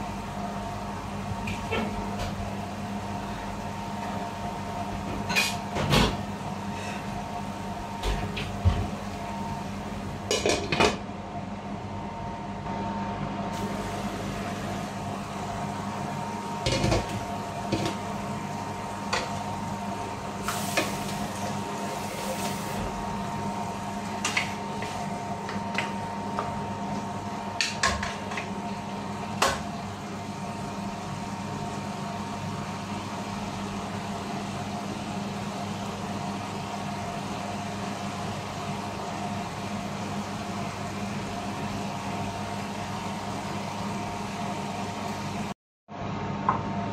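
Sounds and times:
steady hum: 0:00.0 - 0:46.9
food simmering in a frying pan: 0:13.6 - 0:45.5.

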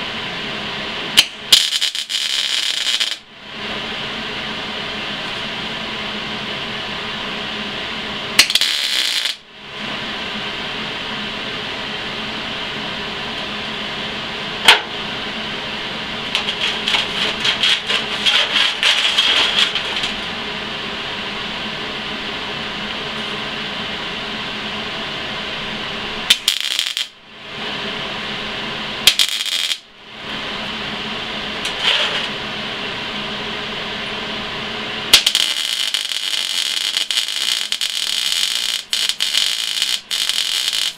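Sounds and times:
steady hum: 0:00.0 - 0:40.9
welding arc crackling: 0:01.2 - 0:03.3, 0:08.4 - 0:09.5, 0:16.2 - 0:20.3, 0:26.2 - 0:27.2, 0:29.0 - 0:29.9, 0:34.9 - 0:40.9.

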